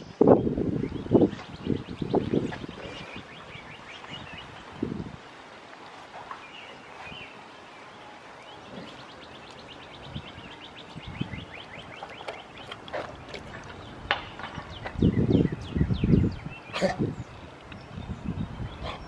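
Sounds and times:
songbird trilling: 8.4 - 19.0.

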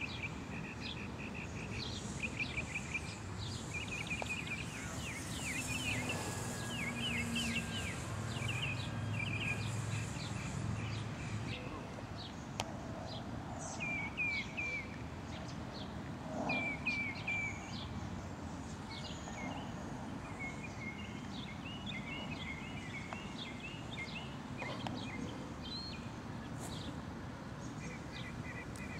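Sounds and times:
birds chirping: 0.0 - 12.4
outdoor background noise: 0.0 - 28.9.

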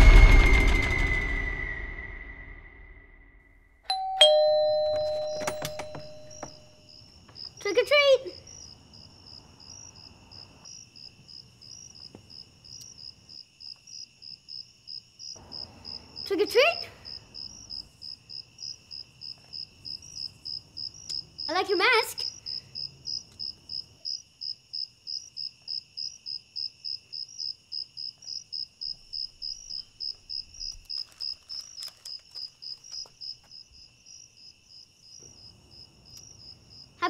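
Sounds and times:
loud rising squeal: 0.0 - 3.5
crickets chirping: 3.9 - 37.0
insect trill: 3.9 - 37.0.

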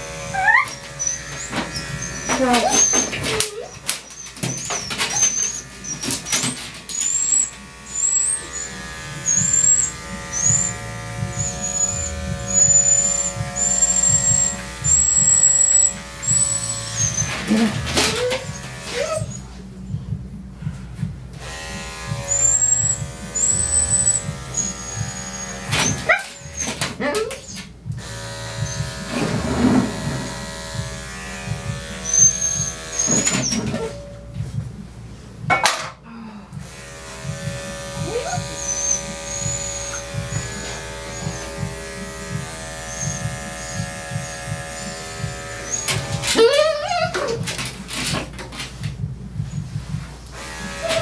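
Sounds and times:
electric clippers buzzing: 0.0 - 19.5, 21.3 - 34.0, 36.6 - 47.9, 49.8 - 51.0
dog whining: 0.3 - 19.6, 22.3 - 27.8, 28.6 - 29.9, 32.0 - 34.1, 38.0 - 48.1.

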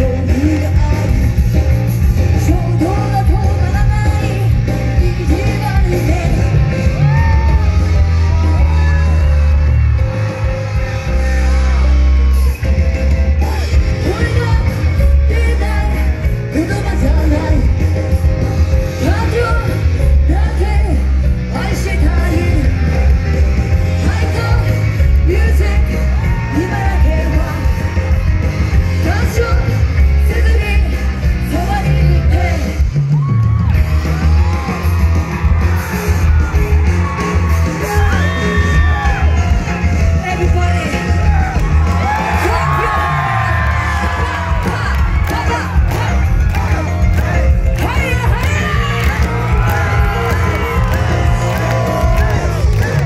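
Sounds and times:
woman singing: 0.0 - 7.5, 13.4 - 18.1, 18.9 - 23.0, 23.8 - 28.0, 28.9 - 33.2, 42.3 - 46.8
pop song with heavy bass: 0.0 - 53.0.

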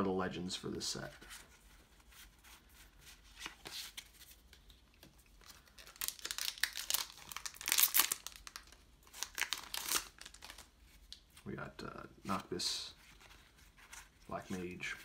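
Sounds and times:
wrapper tearing and crinkling: 5.4 - 11.2.

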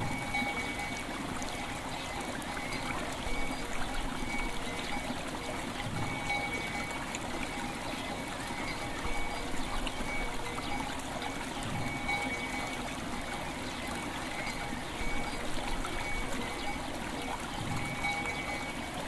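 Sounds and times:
bells ringing: 0.0 - 1.8, 5.9 - 13.6, 14.3 - 19.0
river water flowing: 0.0 - 19.0.

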